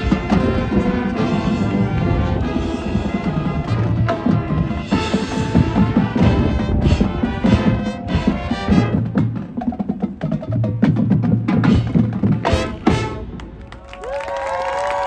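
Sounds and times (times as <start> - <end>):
brass chords: 0.0 - 9.7, 11.6 - 13.6
marching band playing: 0.0 - 13.8.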